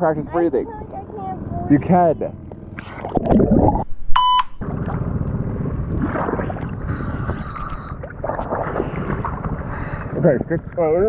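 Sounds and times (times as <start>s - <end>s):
short high beep: 4.1s - 4.6s
water sloshing: 4.5s - 11.0s.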